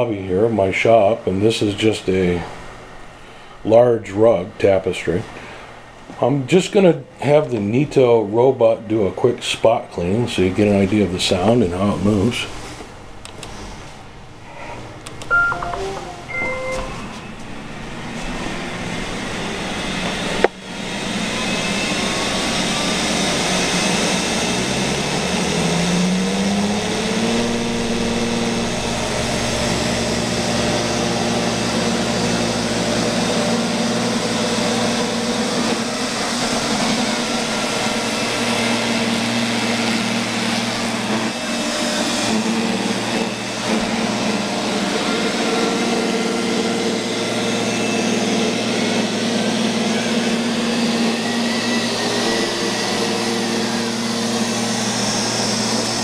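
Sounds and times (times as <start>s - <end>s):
robotic vacuum cleaner whirring: 18.1s - 56.0s.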